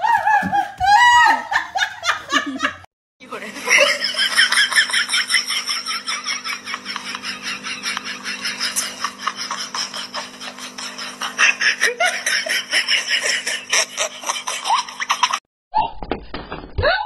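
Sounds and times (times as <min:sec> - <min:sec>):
people laughing: 0:00.0 - 0:15.4.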